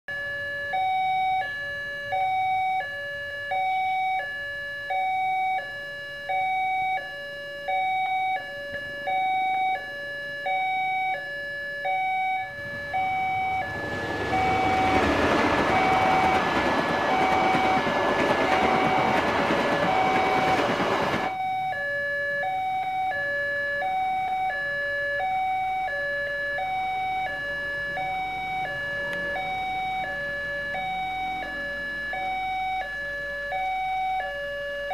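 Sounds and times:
two-tone level-crossing alarm: 0.1s - 34.9s
train rumble and wheel noise: 12.3s - 21.4s, 26.8s - 31.9s.

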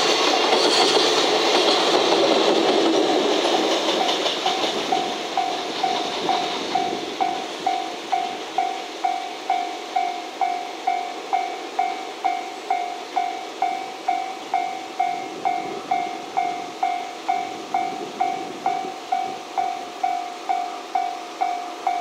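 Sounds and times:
faint train rumble: 0.0s - 22.0s
level crossing warning bell ringing: 4.0s - 22.0s.

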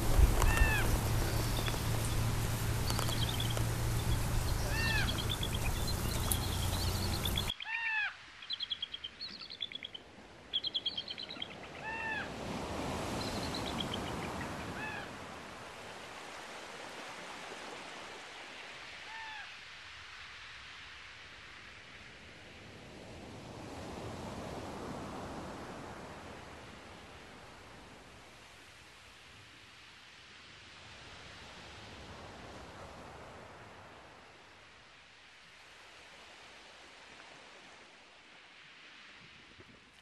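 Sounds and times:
background hiss: 0.0s - 7.6s
high bird chirps: 0.0s - 10.0s
birds calling: 0.0s - 12.3s, 13.0s - 15.1s.

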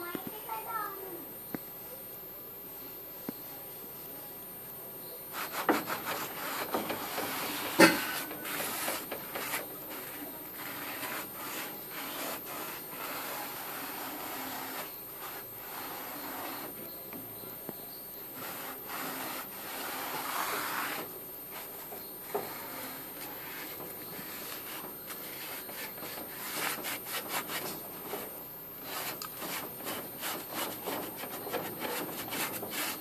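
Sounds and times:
scouring pad scrubbing metal: 5.4s - 16.7s, 18.3s - 33.0s.

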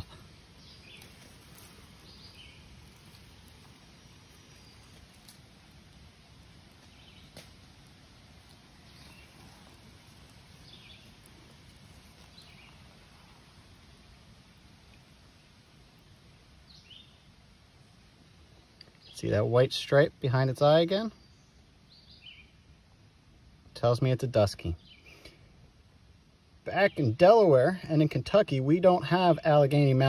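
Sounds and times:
faint bird chirps: 0.0s - 17.4s, 21.1s - 23.2s, 24.7s - 25.7s
small stream flowing: 0.0s - 18.3s.

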